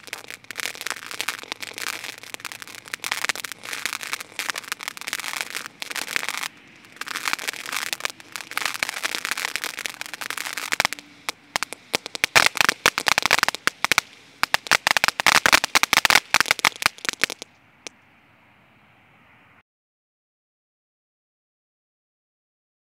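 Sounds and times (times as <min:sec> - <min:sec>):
firework sparks hissing: 0:00.0 - 0:17.5
firework crackling: 0:00.0 - 0:17.6.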